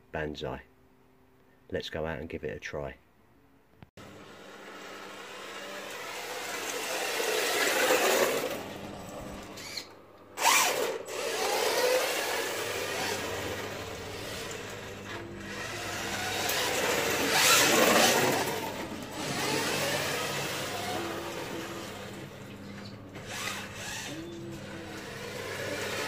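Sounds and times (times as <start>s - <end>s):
toy car electric motor whining: 5.0s - 22.4s, 23.2s - 26.0s.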